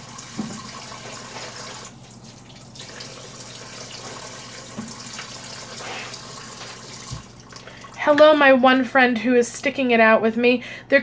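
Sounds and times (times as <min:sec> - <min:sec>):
tap water running: 0:00.0 - 0:08.4.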